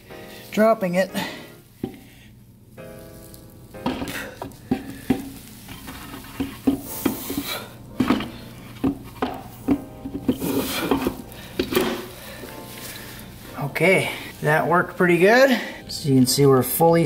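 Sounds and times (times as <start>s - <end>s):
metal scraping: 3.8s - 9.3s.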